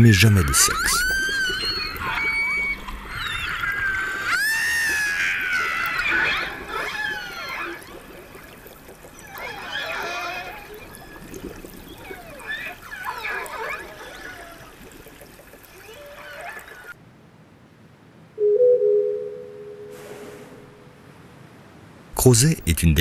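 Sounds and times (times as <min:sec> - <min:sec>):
faint water noise: 0:00.0 - 0:23.0
killer whales whistling and squealing: 0:00.4 - 0:08.0, 0:09.0 - 0:14.8.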